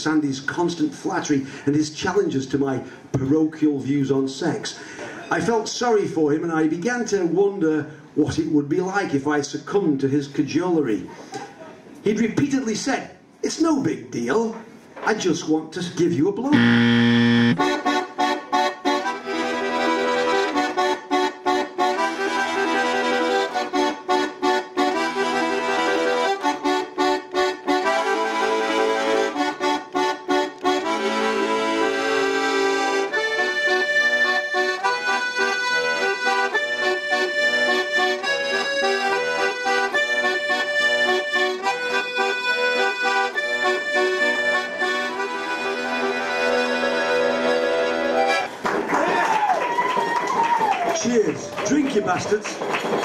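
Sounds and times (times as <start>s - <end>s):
button accordion playing: 16.5s - 48.5s.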